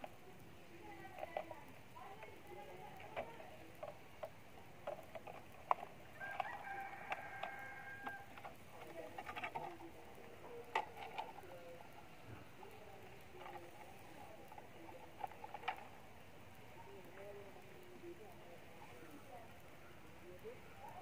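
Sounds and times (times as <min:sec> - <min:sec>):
rooster crowing: 0:06.1 - 0:08.4.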